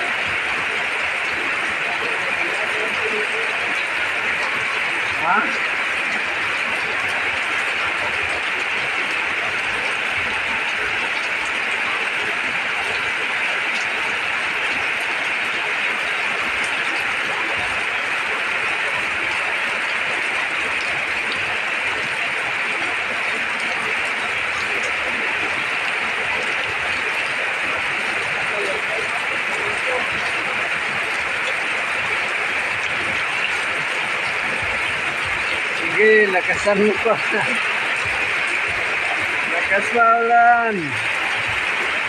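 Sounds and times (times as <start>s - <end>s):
heavy rain on metal roof: 0.0s - 42.0s.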